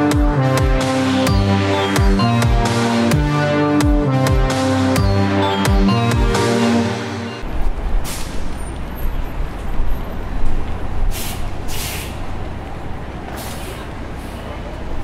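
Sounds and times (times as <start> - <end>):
heavy road traffic rumble: 0.0 - 15.0
air brake hisses: 11.1 - 12.2, 13.4 - 14.4.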